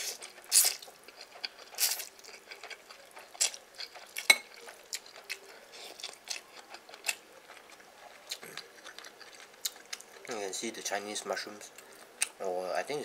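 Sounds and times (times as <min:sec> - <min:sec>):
spoon clinking against bowl: 0:04.3 - 0:04.5.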